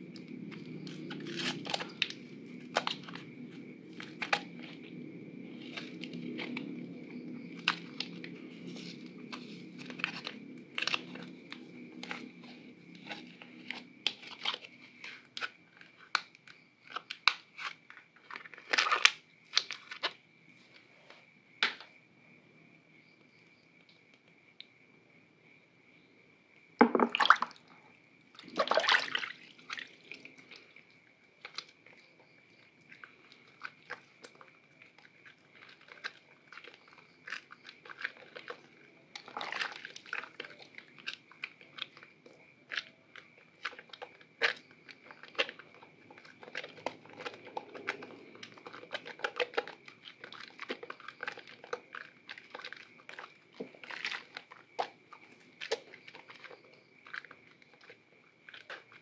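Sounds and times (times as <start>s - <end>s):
wet soap clicks and crackles: 0.1s - 20.9s, 28.4s - 59.0s
water splashes: 26.8s - 31.8s.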